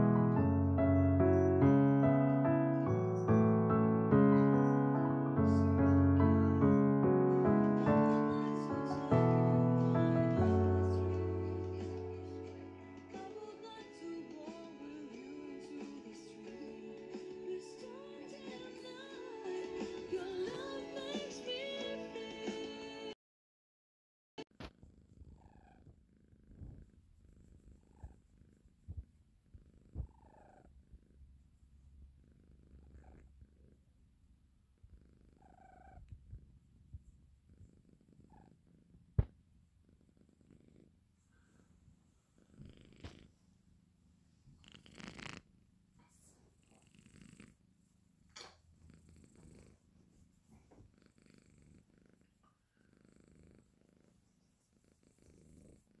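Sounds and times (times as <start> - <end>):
kitten snoring softly: 24.4 - 34.1, 34.7 - 43.6, 44.2 - 56.0.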